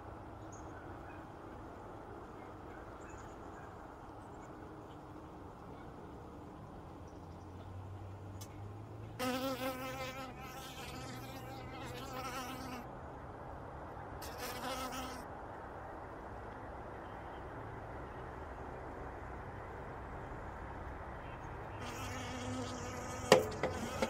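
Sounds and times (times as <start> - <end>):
bees humming in hive: 9.2 - 12.8, 21.8 - 24.0
single bee buzzing close: 9.2 - 12.8, 14.2 - 15.2, 21.8 - 24.0.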